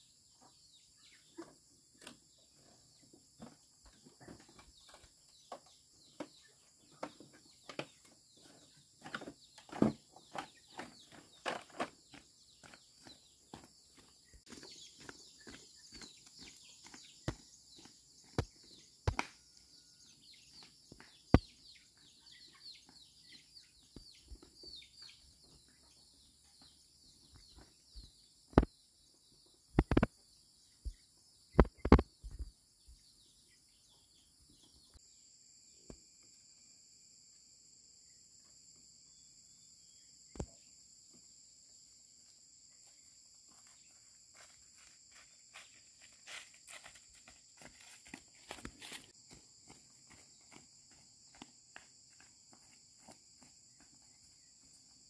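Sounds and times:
insect chirps: 0:12.1 - 0:55.0
insect drone: 0:35.0 - 0:55.0.

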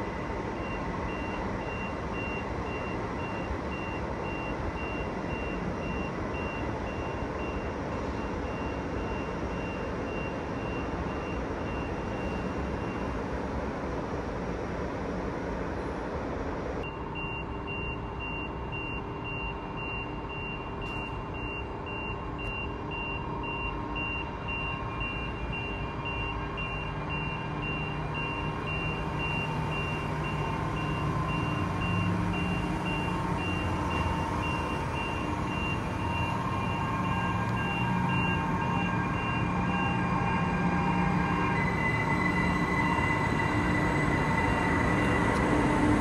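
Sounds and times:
electric train traction hum: 0:23.2 - 0:46.0.

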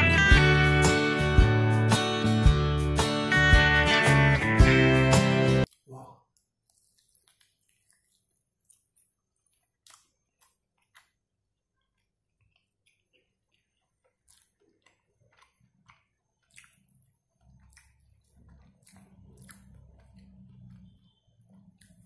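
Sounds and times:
chewing with wet mouth smacks: 0:06.4 - 0:22.0.

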